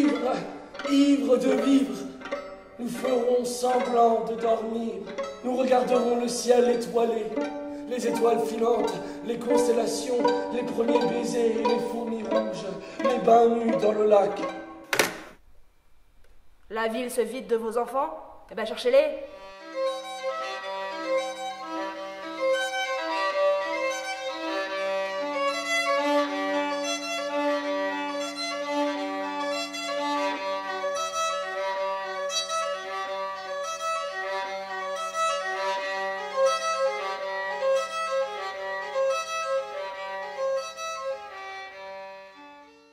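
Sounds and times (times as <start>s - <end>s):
bowed violin melody: 0.0s - 14.9s, 19.2s - 42.9s.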